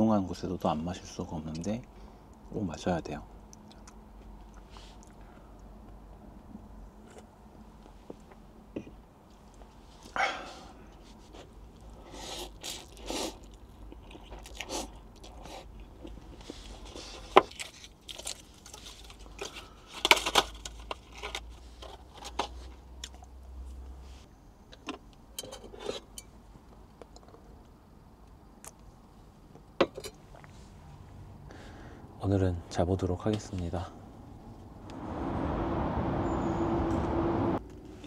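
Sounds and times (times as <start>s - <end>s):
person chewing and crunching: 12.4s - 19.6s.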